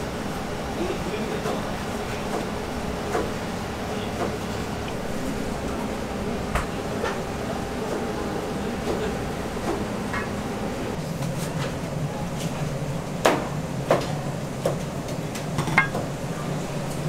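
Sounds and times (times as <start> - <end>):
kitchenware knocking and clinking: 15.6 - 16.1.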